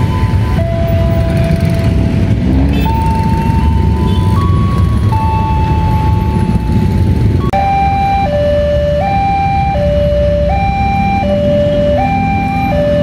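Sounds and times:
level crossing two-tone alarm: 2.8s - 13.0s.

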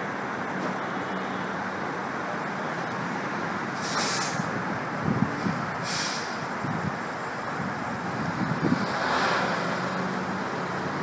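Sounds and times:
air brake hiss: 3.8s - 4.5s, 5.4s - 6.5s.

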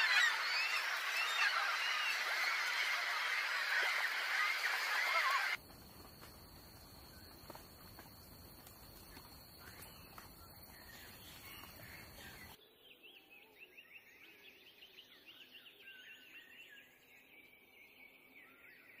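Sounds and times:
small birds chirping: 0.0s - 6.1s, 6.8s - 14.3s.

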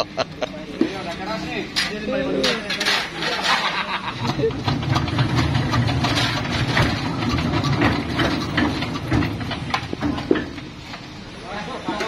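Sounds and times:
diesel engine chugging: 4.0s - 11.9s
engine clattering knock: 4.2s - 10.7s.

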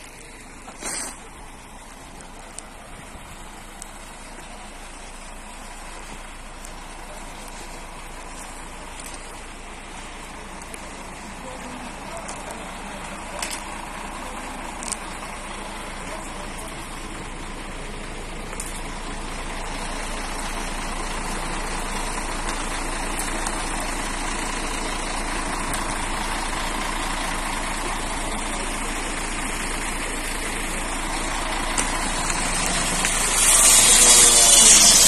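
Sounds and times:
fire truck engine running: 0.0s - 35.0s
water spraying hiss: 0.6s - 1.5s, 31.8s - 35.0s.

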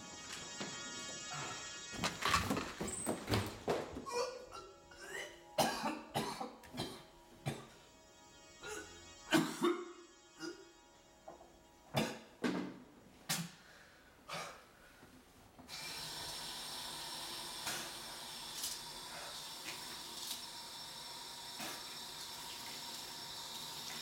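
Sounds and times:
man coughing: 4.1s - 7.7s, 8.6s - 10.6s
water running into basin: 15.8s - 24.0s.

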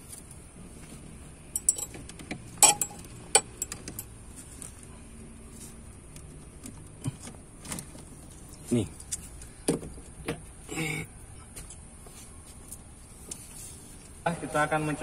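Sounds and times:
test clips clicking and clinking: 1.6s - 4.1s.

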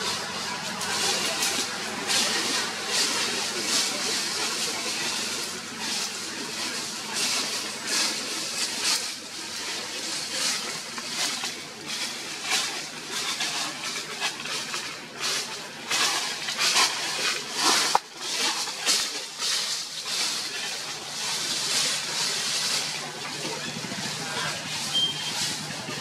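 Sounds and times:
leaves and twigs rustling: 0.0s - 26.0s.

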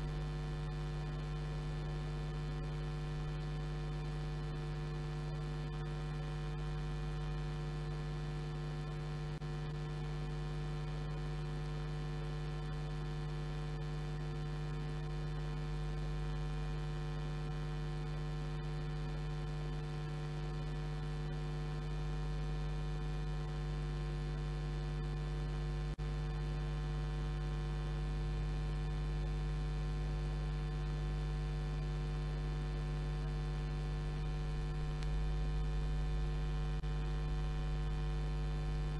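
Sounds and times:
electrical mains hum: 0.0s - 38.9s.

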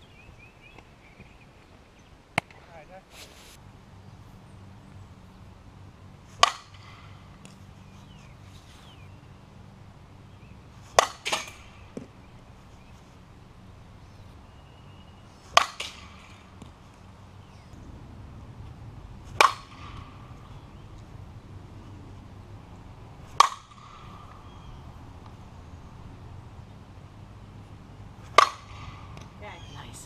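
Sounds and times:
bat cracking a ball: 2.3s - 2.6s, 6.4s - 7.6s, 10.8s - 12.2s, 15.4s - 16.8s, 19.3s - 21.1s, 23.2s - 25.4s, 28.2s - 29.4s.

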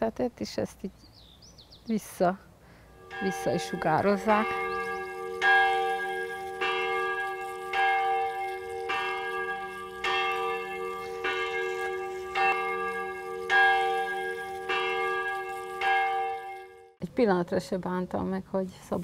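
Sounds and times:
church bell tolling: 2.8s - 17.0s.

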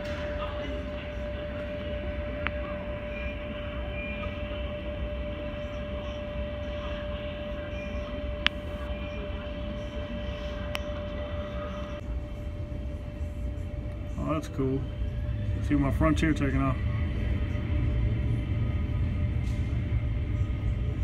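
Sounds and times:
mid-pitched hum: 0.0s - 21.0s
low rumble: 11.9s - 21.0s.

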